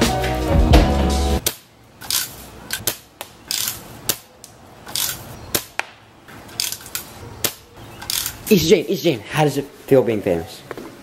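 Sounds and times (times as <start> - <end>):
sharp clicks and hissing snaps: 1.4 - 8.6.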